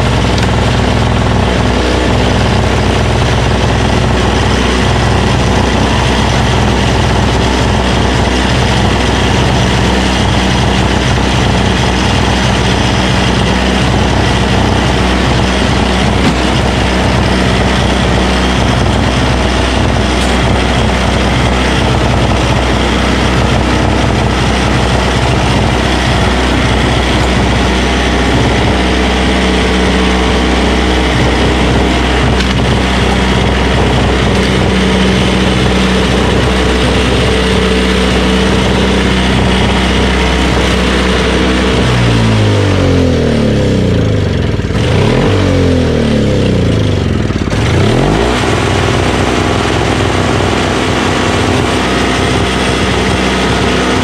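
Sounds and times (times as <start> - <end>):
snowblower engine running: 0.0 - 54.0.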